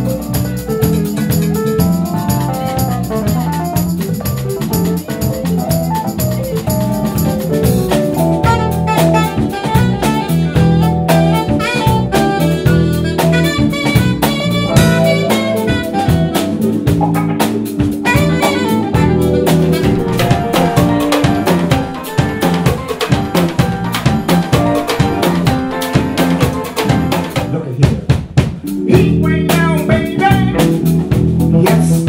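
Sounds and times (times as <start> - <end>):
jazz band playing: 0.0 - 32.0
drums struck with sticks: 13.8 - 29.8
saxophone runs: 18.0 - 27.3.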